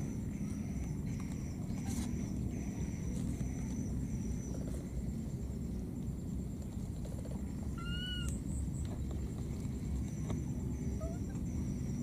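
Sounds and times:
baby monkey high call: 7.7 - 8.4, 10.8 - 11.6.

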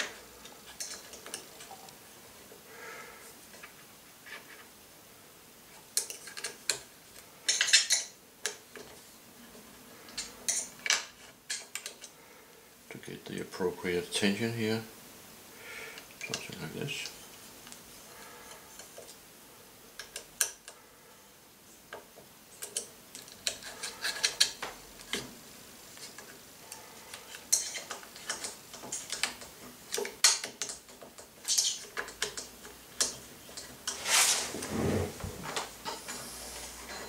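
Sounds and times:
rubbing rumble: 34.0 - 35.6.

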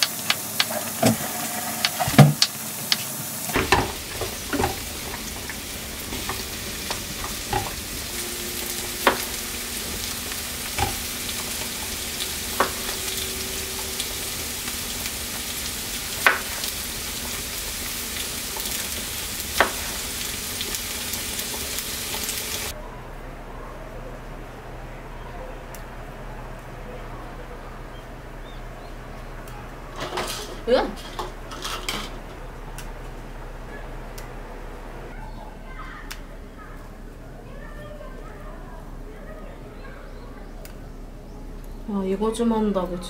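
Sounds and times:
vegetables sizzling in a frying pan: 0.0 - 22.8.

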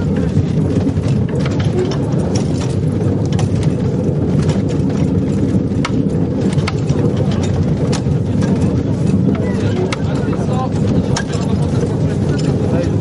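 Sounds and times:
wagon wheels rolling on rails: 0.0 - 13.0.

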